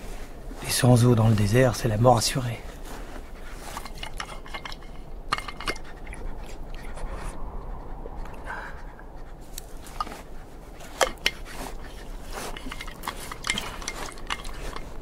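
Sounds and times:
gear clinking: 10.8s - 15.0s.

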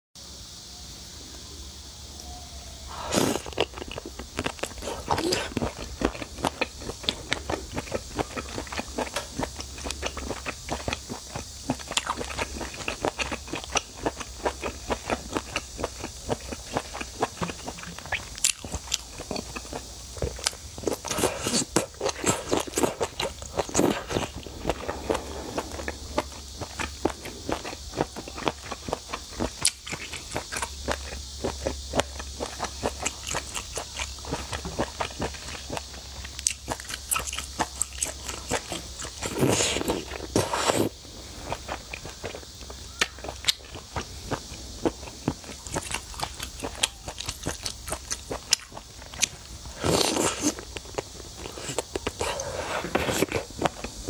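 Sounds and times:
wet chewing and smacking: 3.1s - 54.0s
sucking slurps: 20.9s - 27.8s.

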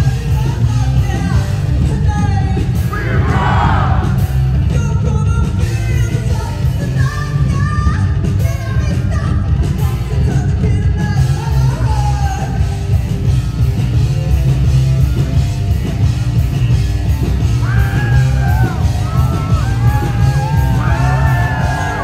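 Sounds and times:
rock band playing: 0.0s - 22.0s
woman singing: 4.7s - 12.6s.

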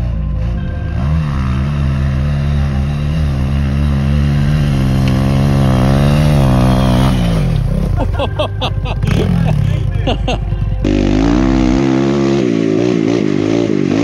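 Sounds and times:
dirt bike engine revving: 0.0s - 14.0s.

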